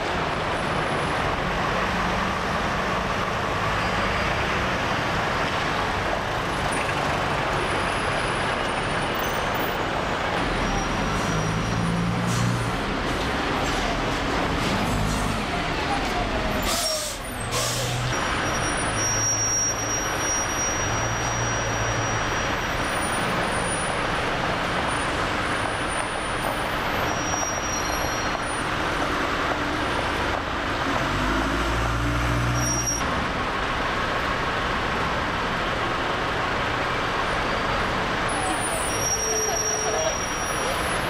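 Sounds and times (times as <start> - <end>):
diesel bus engines: 0.0 - 41.0
street noise: 0.0 - 41.0.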